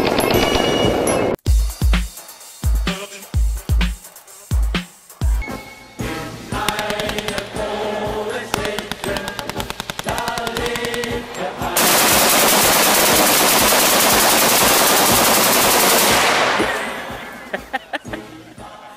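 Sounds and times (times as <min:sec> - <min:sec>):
rapid rifle gunfire: 0:06.6 - 0:07.5, 0:08.5 - 0:11.2, 0:11.8 - 0:16.8.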